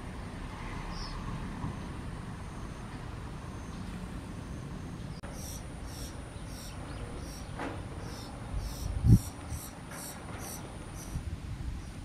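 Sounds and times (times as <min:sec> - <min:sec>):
high-pitched bird calls: 0:04.5 - 0:11.2.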